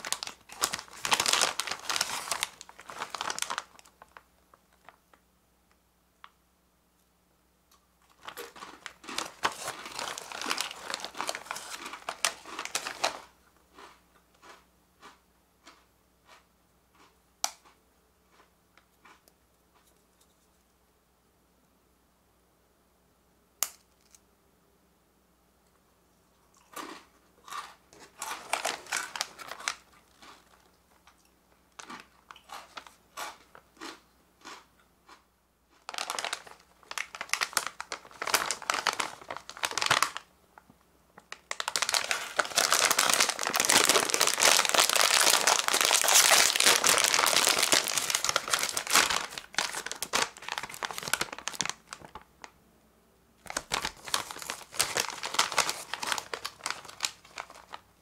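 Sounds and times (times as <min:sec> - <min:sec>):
chip bag crinkling: 0:00.0 - 0:05.2, 0:08.0 - 0:16.4, 0:26.5 - 0:34.7, 0:35.7 - 0:40.3, 0:41.2 - 0:52.4, 0:53.4 - 0:57.9.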